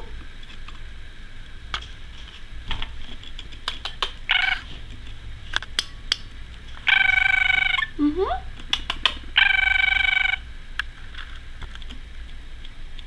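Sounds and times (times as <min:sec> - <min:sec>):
budgerigar clicks and ticks: 0:03.4 - 0:04.6, 0:08.6 - 0:10.3
budgerigar buzzy call: 0:04.3 - 0:04.7, 0:06.8 - 0:08.0, 0:09.4 - 0:10.5.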